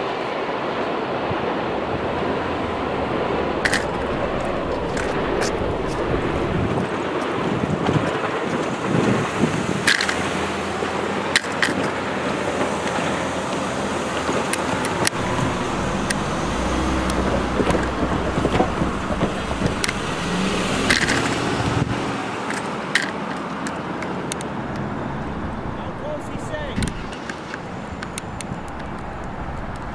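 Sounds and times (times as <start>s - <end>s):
traffic rumble: 1.2s - 7.0s, 12.6s - 22.6s, 24.3s - 29.9s
truck driving past: 1.5s - 6.9s, 15.1s - 22.4s, 24.5s - 29.9s.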